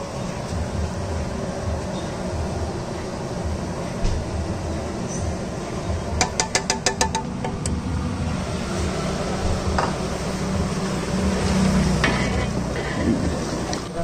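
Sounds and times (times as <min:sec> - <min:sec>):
steady low hum: 0:00.0 - 0:14.0
metal ladle knocking on pot: 0:06.2 - 0:07.6
plastic jar tapping on metal pot: 0:06.2 - 0:07.7.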